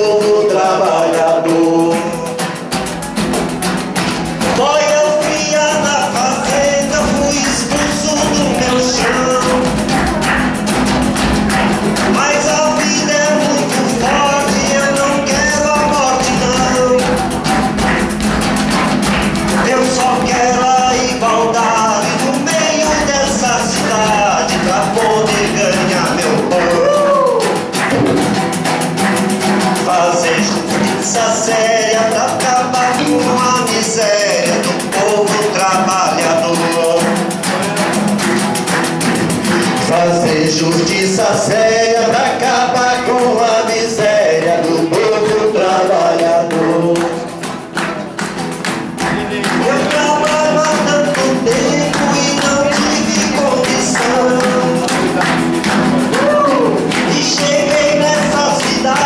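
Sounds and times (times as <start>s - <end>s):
acoustic guitar strumming: 0.0s - 59.0s
frame drum jingling: 1.8s - 26.8s.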